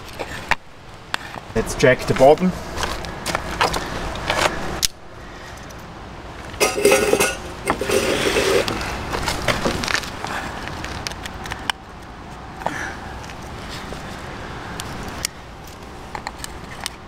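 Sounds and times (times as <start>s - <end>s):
tin scraping on wooden table: 6.6s - 8.8s.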